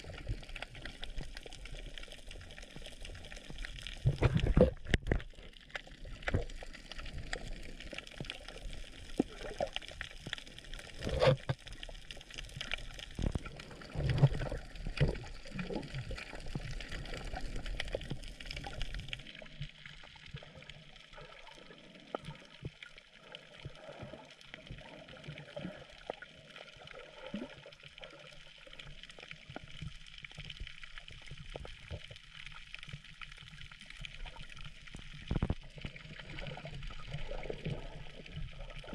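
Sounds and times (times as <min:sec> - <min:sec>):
underwater water noise: 0:00.0 - 0:38.9.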